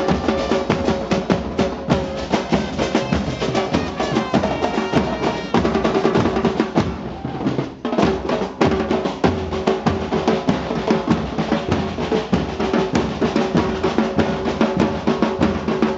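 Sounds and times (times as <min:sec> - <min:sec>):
trumpets: 0:00.0 - 0:07.7
bass and snare drums beating: 0:00.0 - 0:15.9.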